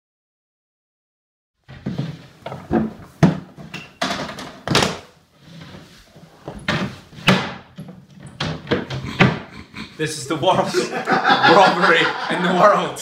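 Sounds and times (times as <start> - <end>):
knocks on wooden shelves: 1.8 - 5.1, 8.4 - 9.5.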